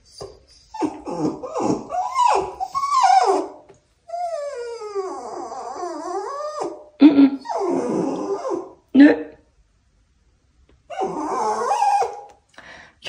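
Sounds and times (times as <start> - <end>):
small dog whining: 0.0 - 8.8, 10.9 - 12.4.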